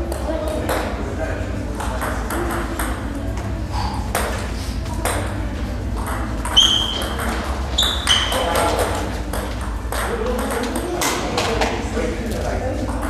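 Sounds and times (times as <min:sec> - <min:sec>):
table tennis ball clicking: 0:06.0 - 0:11.2.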